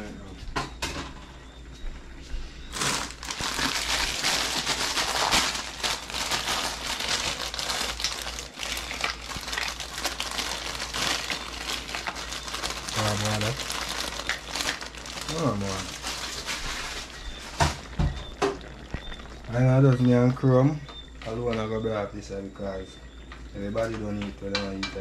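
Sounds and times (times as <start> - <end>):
plastic packet crinkling: 2.7 - 20.2.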